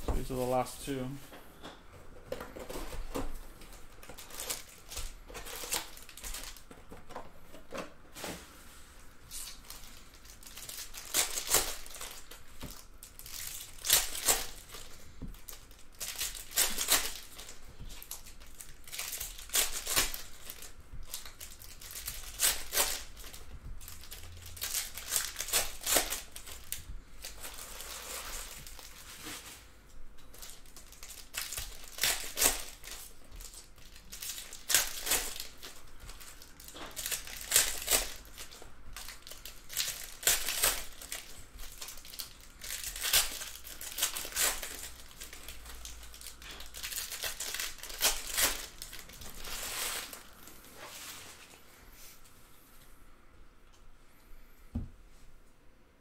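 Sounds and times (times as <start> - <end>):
foil wrappers tearing and crinkling: 3.8 - 6.7, 9.3 - 29.7, 30.3 - 51.4.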